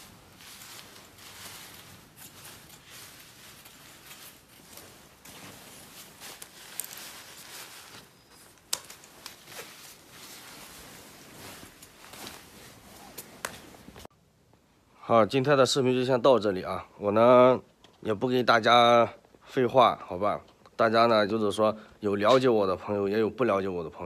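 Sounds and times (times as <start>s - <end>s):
fabric rustling: 0.0s - 14.1s.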